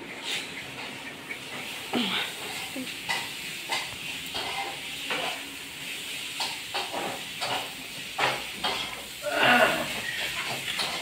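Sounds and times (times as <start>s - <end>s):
food sizzling in a pan: 1.8s - 11.0s.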